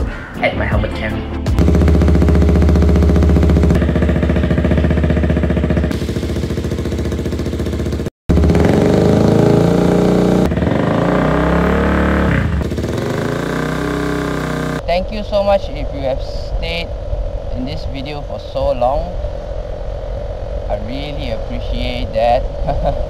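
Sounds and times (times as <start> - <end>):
motorcycle engine running: 1.5 - 14.8.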